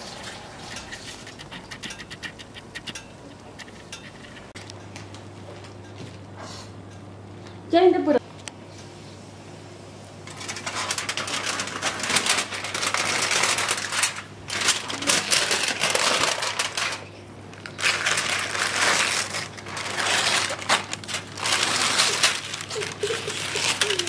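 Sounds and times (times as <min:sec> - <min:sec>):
foil and paper crinkling and tearing: 0:10.3 - 0:24.0.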